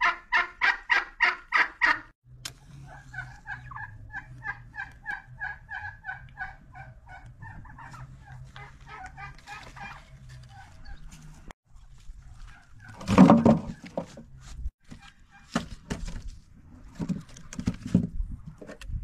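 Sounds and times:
turkey calling: 0.0 - 2.1, 2.8 - 11.4.

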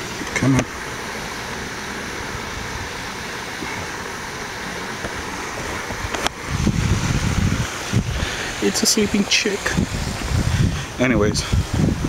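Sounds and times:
steady rushing hiss: 0.0 - 12.0.

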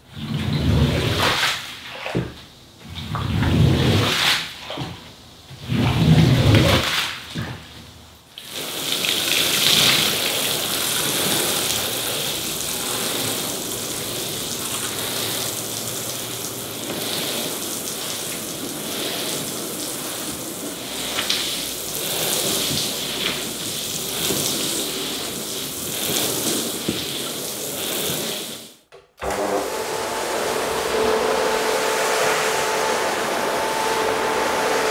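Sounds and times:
hissing liquid spray: 8.4 - 28.8, 29.6 - 34.9
rug scrubbing machine humming: 9.8 - 25.5, 29.2 - 34.9.

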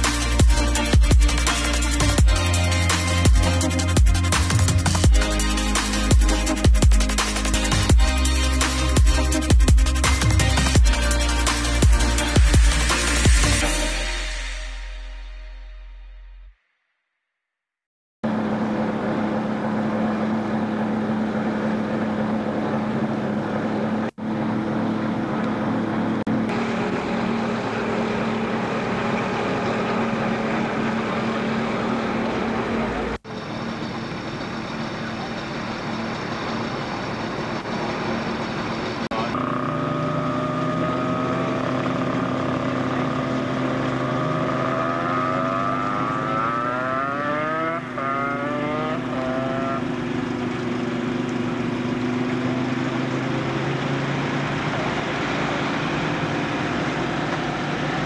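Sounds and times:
racing car engines droning: 18.2 - 58.0.

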